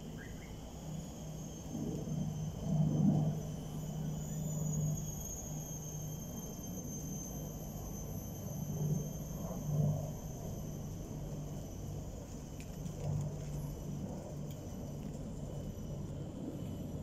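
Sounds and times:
faint high-pitched whine: 0.0 - 17.0
vehicle engine rumble: 8.7 - 17.0.

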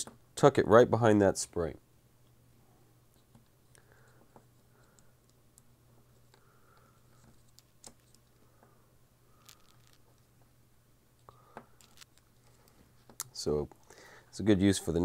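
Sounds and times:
low steady hum: 0.0 - 15.0
small clicks and scratching: 3.1 - 8.7, 9.3 - 10.5, 11.2 - 13.8.

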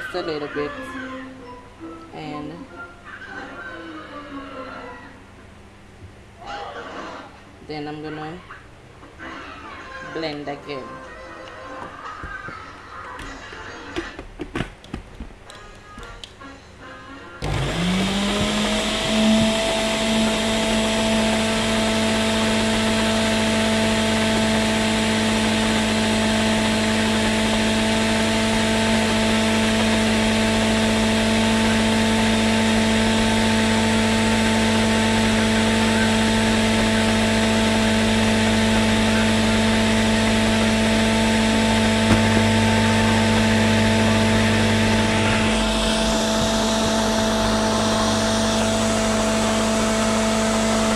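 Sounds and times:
blender motor running: 17.4 - 50.9.

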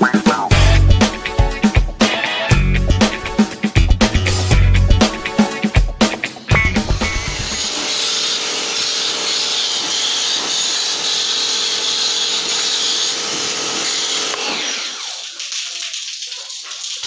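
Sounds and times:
electric sprayer motor whirring: 6.8 - 15.3.

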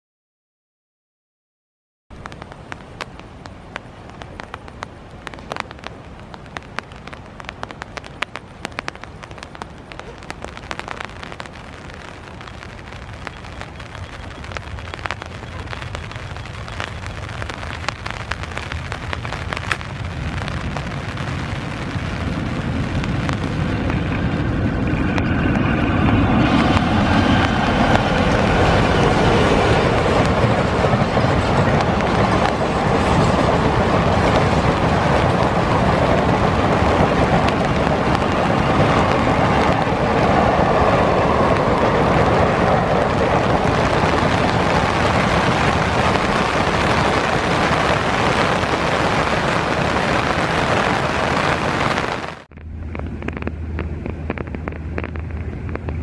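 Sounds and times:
rain falling: 2.1 - 56.0
raindrop clicks near microphone: 2.2 - 40.4, 52.0 - 56.0
train rumbling over bridge: 2.3 - 51.6.

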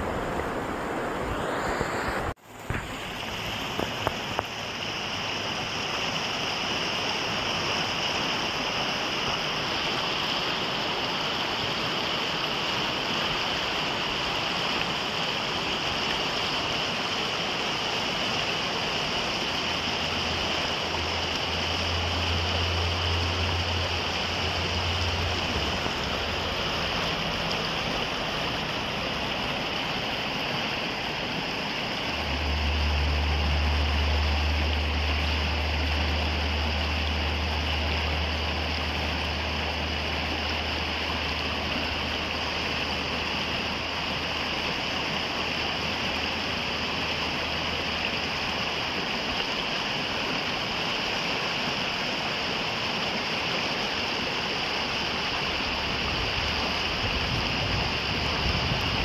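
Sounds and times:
river rapids rushing over boulders: 0.0 - 59.0
low rumble: 32.0 - 40.4.

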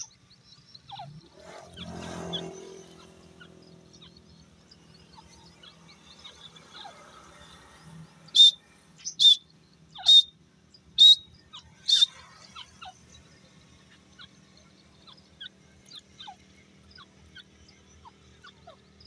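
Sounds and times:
francolin calling: 0.0 - 7.6, 8.3 - 13.0.

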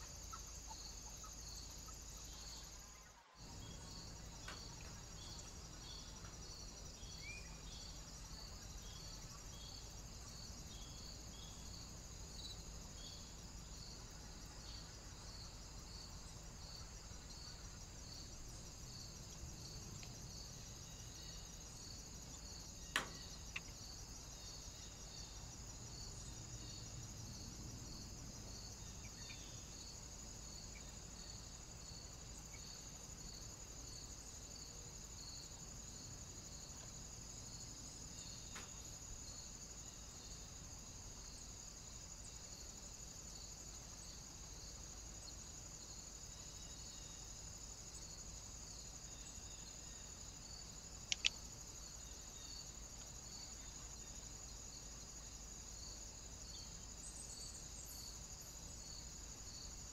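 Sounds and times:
crickets chirping: 0.0 - 59.9
high insect buzz: 0.0 - 59.9
sharp click: 22.9 - 23.7, 51.1 - 51.4.

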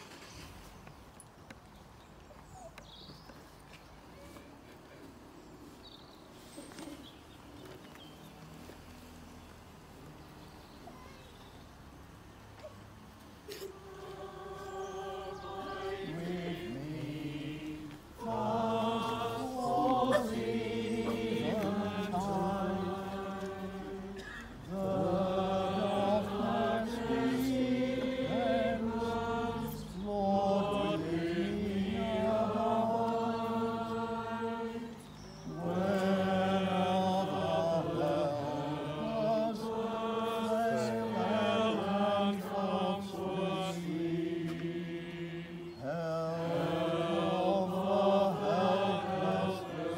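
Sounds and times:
choir and congregation singing: 13.5 - 49.9.

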